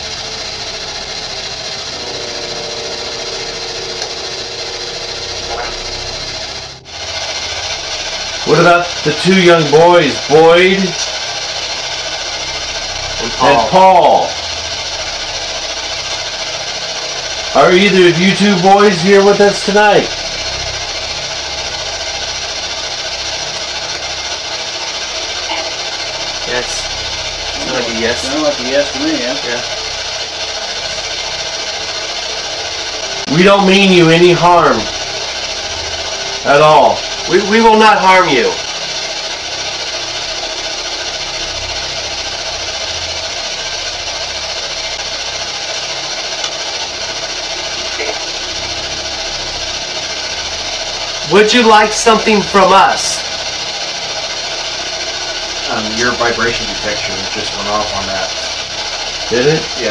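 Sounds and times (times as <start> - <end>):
electronic static hiss: 0.0 - 17.8
low rumbling hum: 0.0 - 59.9.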